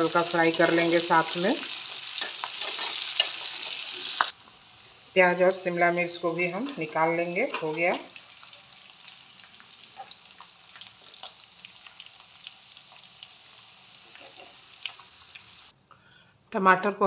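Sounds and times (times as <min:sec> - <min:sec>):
vegetables sizzling in oil: 0:00.0 - 0:15.7
metal spoon stirring: 0:02.2 - 0:03.8.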